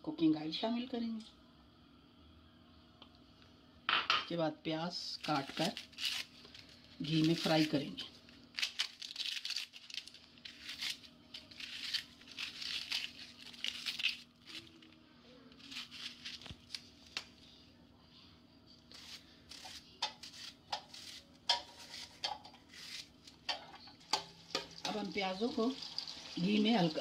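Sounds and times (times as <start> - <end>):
onion skin tearing rustle: 5.1 - 17.5, 18.9 - 23.4.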